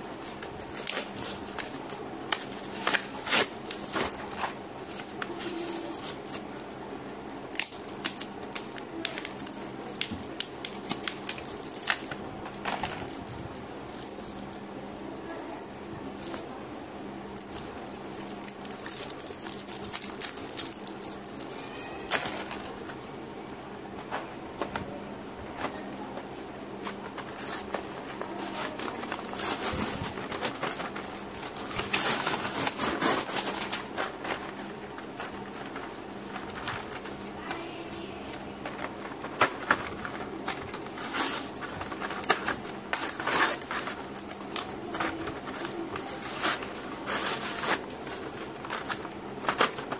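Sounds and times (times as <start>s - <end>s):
plastic packaging crinkling and tearing: 0.2s - 16.6s, 17.2s - 23.2s, 26.8s - 37.4s, 38.2s - 49.9s.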